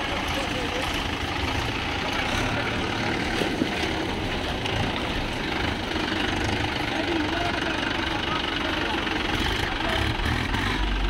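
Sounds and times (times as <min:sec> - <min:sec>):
tractor diesel engine running: 0:00.0 - 0:11.0.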